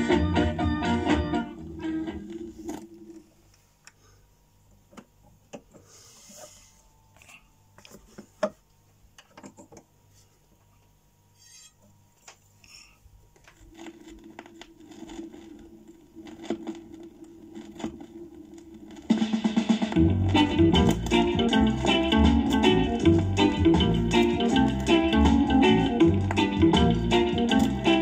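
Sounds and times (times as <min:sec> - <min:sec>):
reggae music: 0:00.0 - 0:03.2, 0:19.0 - 0:28.0
vinyl record handling clicks: 0:24.0 - 0:25.2, 0:27.4 - 0:28.0.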